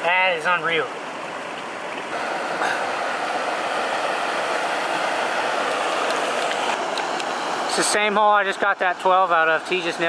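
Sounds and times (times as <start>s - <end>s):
small waterfall rushing: 2.1s - 8.0s.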